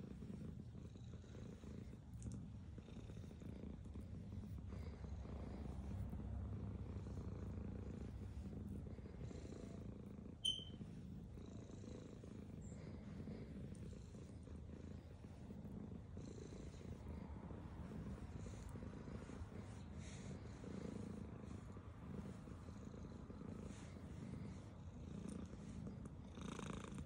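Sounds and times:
cat purring: 0:00.0 - 0:27.0
high-pitched squeak: 0:10.4 - 0:10.8.

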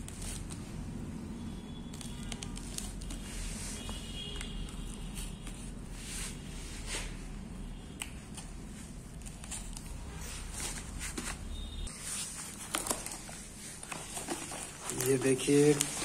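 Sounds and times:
cardboard rustling and crackling: 0:09.2 - 0:16.0.

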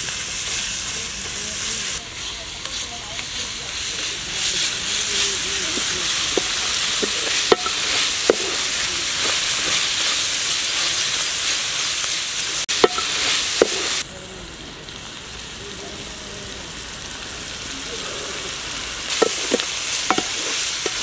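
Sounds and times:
vegetables sizzling in oil: 0:00.0 - 0:21.0
wooden spoon knocking on pan: 0:05.7 - 0:09.3, 0:12.8 - 0:13.9, 0:19.2 - 0:21.0.

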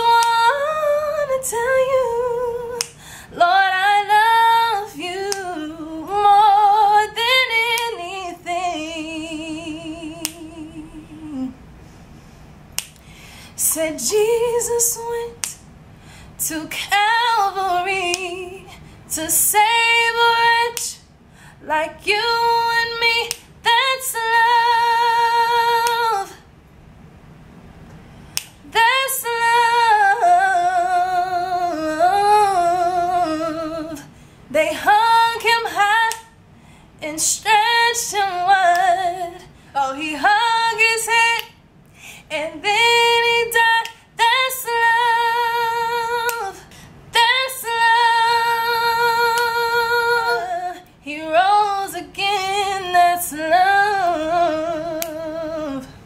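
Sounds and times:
woman singing a cappella: 0:00.0 - 0:11.7, 0:13.5 - 0:15.7, 0:16.3 - 0:26.5, 0:28.3 - 0:56.0.

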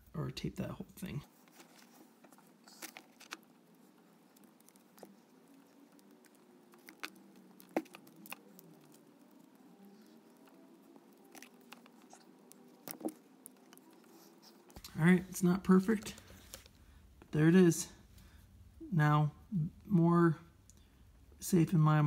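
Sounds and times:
tape and cord clicks and rustles: 0:01.4 - 0:15.0, 0:15.7 - 0:16.8.

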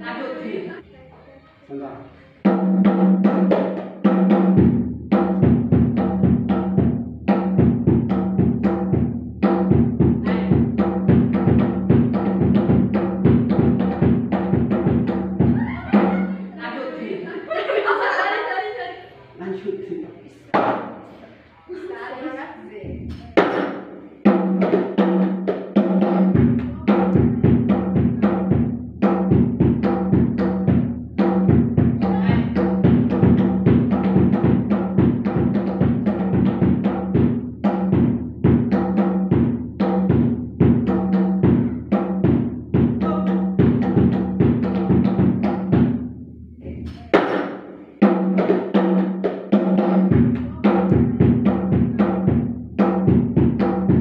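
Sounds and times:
hand-struck frame drums: 0:02.4 - 0:16.4, 0:22.9 - 0:46.2, 0:46.8 - 0:54.0
deep low drum beat: 0:04.1 - 0:16.2, 0:24.3 - 0:46.1, 0:49.5 - 0:54.0.

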